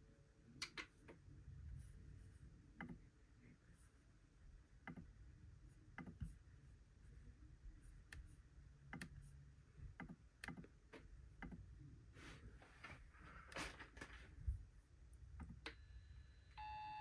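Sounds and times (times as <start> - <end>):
computer mouse clicks: 6.0 - 6.3, 8.9 - 9.2, 10.0 - 10.7, 11.4 - 11.6.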